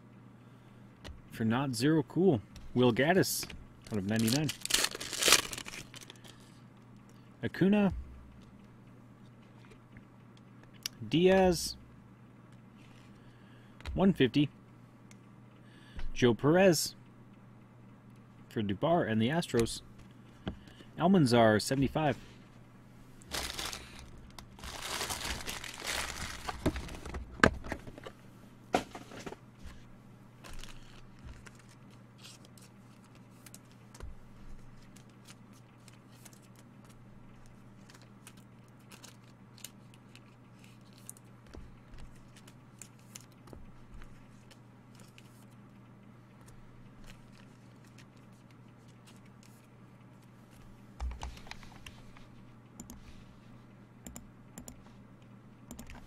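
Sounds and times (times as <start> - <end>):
steady low hum: 0.0 - 56.0
packaging wrapper crinkling and tearing: 3.8 - 6.4, 23.2 - 27.1, 30.4 - 33.6, 37.8 - 41.2.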